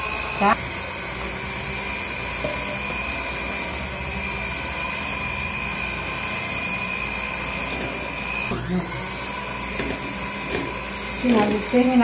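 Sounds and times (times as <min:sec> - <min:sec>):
electric hand mixer whisking batter: 0:00.0 - 0:12.0.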